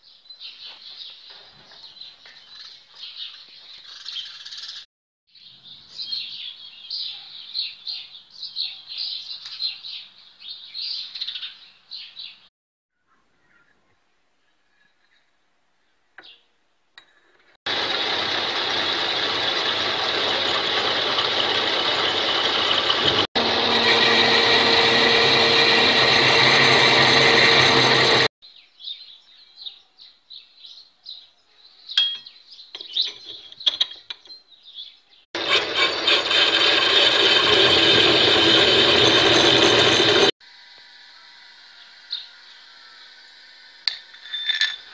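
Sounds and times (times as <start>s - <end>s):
metal lathe whirring: 17.7s - 28.3s, 35.4s - 40.3s.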